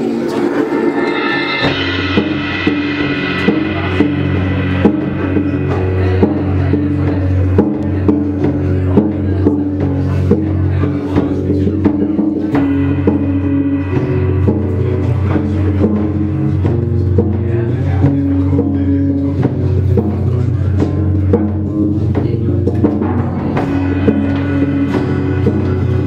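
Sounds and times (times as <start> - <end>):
soft drum beat with mallets: 0.0 - 26.0
steady low bass notes: 0.0 - 26.0.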